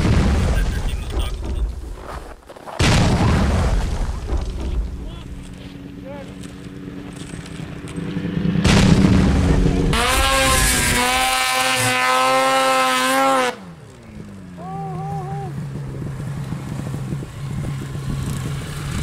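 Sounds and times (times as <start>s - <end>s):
snowmobile engine revving: 4.5s - 19.0s.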